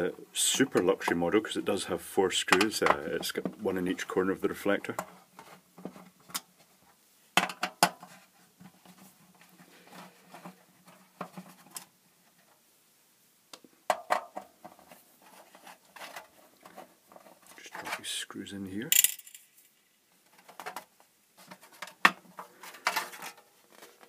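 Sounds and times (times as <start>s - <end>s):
quiet scraping: 14.6s - 18.9s.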